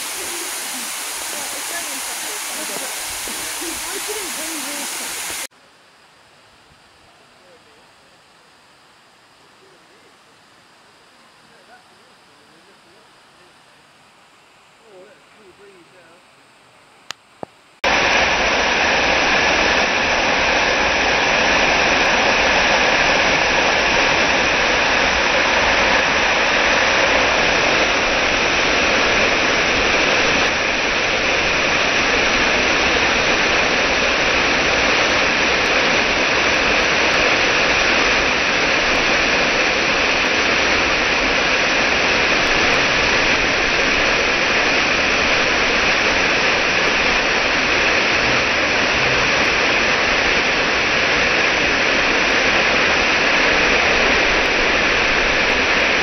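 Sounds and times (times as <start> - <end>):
waterfall cascading over rocks: 0.0 - 5.5, 17.8 - 56.0.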